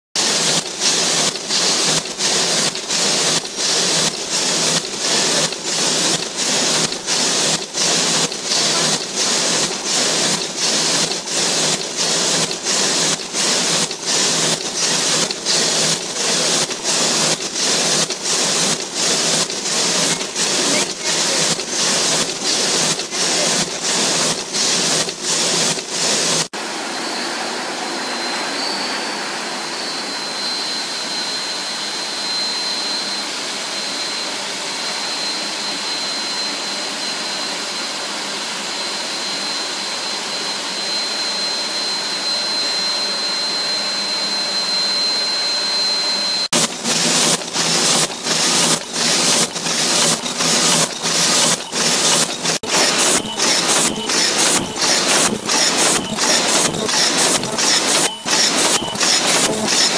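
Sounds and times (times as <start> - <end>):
machine noise with high whine: 0.0 - 59.9
repeating mechanical machine strokes: 0.2 - 26.5, 46.4 - 59.9.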